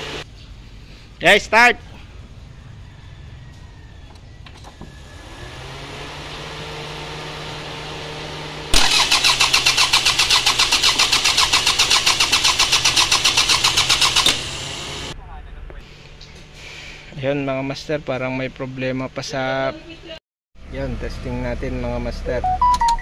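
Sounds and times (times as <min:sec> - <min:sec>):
starter motor cranking engine: 0:08.7 - 0:15.2.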